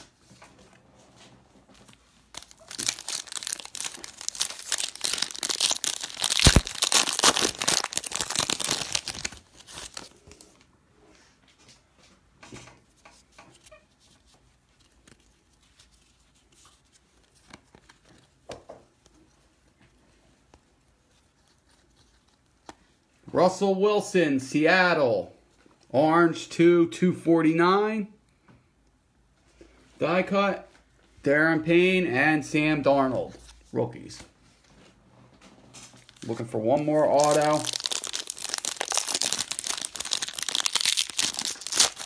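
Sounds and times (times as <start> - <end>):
wrapper tearing and crinkling: 2.2 - 10.4, 35.9 - 42.0.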